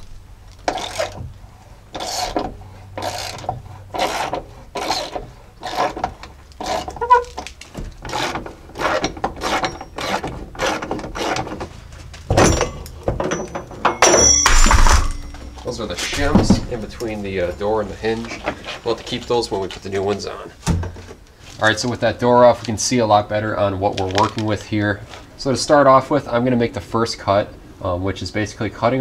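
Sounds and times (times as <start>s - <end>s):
loud knock: 14.0s - 15.4s.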